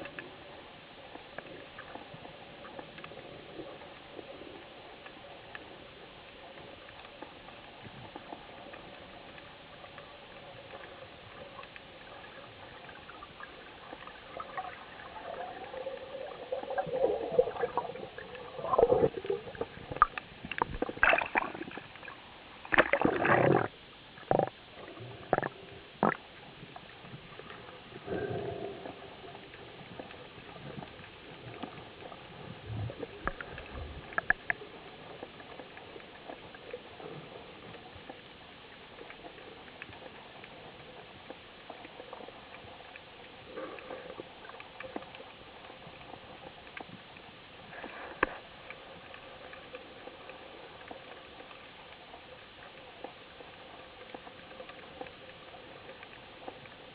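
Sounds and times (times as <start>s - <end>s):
underwater ticking and crackle: 0.0s - 56.9s
water sloshing and splashing: 10.7s - 28.2s.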